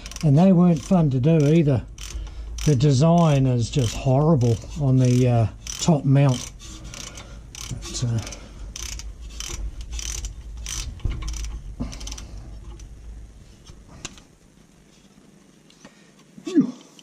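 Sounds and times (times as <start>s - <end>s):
ratcheting spanner clicking: 0.0s - 13.0s.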